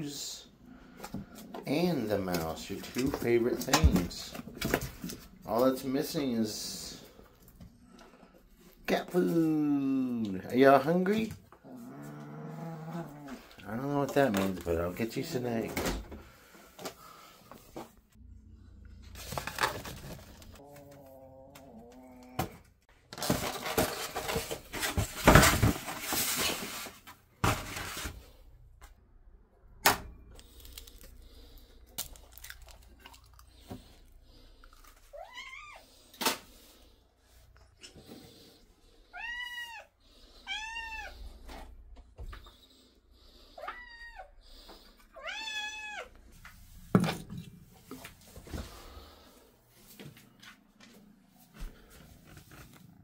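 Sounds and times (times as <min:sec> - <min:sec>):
rummaging and clatter: 0:19.0 - 0:20.6, 0:23.1 - 0:28.3
cat meowing: 0:35.1 - 0:35.8, 0:39.1 - 0:41.2, 0:45.2 - 0:46.1.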